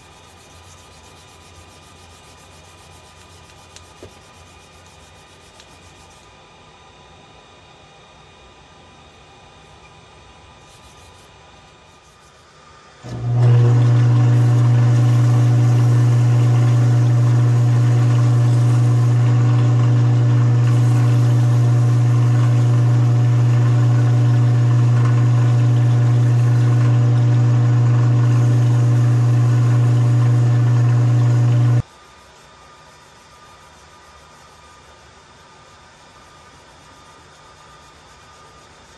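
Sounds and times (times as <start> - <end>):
lathe motor humming: 13.0 - 31.8.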